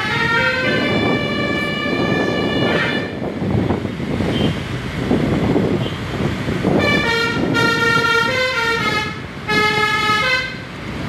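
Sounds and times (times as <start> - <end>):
bus horn playing melody: 0.0 - 3.3, 6.7 - 10.7
engine and road noise: 0.0 - 11.0.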